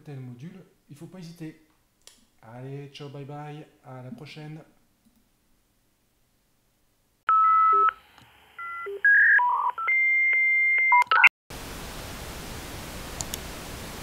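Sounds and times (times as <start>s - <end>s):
electronic telephone beeps: 7.3s - 8.0s, 8.6s - 11.3s.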